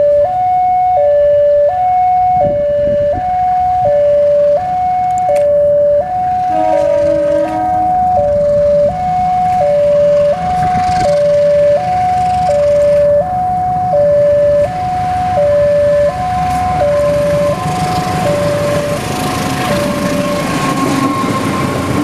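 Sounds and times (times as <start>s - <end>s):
level crossing alarm two tones: 0.0s - 21.7s
diesel train rumbling: 0.0s - 22.0s.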